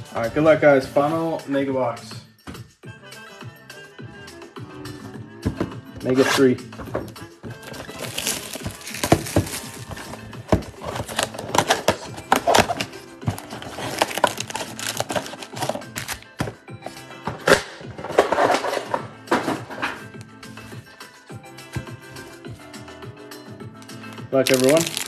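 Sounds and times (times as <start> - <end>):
background music: 0.0 - 25.0
foil card packs crinkling: 7.6 - 16.4, 24.0 - 25.0.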